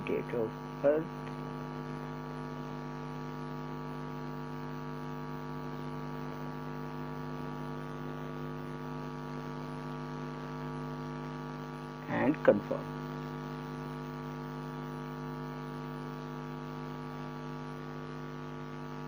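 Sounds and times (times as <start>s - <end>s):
electrical hum: 0.0s - 19.0s.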